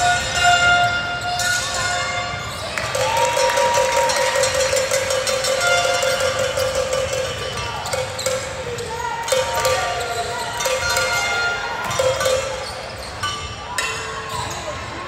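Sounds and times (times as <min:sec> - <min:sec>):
sneakers squeaking on court: 0:11.9 - 0:15.0.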